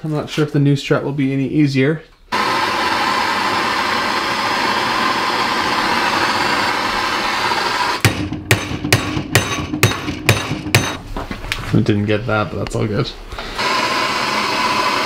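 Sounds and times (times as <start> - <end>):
gas torch flame hissing: 2.3 - 8.0, 13.3 - 15.0
hammer striking bolts: 8.0 - 11.0.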